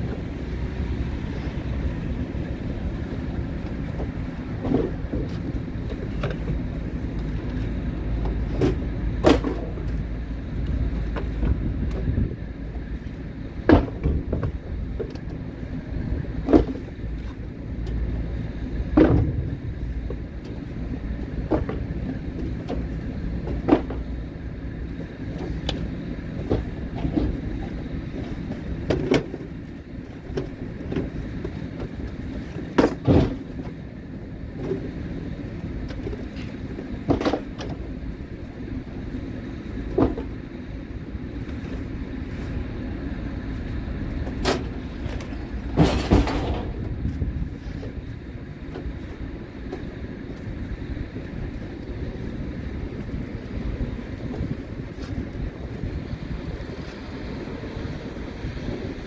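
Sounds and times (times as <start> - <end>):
vehicle rumble: 0.0 - 59.0
knocks and rattles: 44.3 - 47.0.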